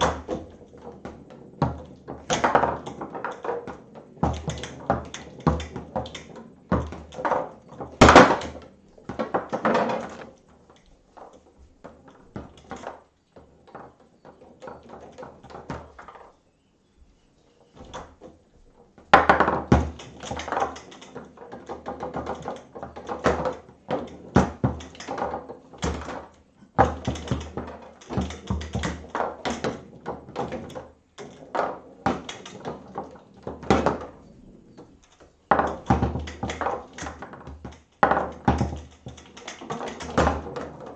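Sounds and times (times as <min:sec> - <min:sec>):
foosball ball knocking: 0:00.0 - 0:10.2, 0:19.1 - 0:20.8, 0:35.5 - 0:40.9
foosball rods sliding and clacking: 0:00.0 - 0:16.3, 0:17.6 - 0:40.9.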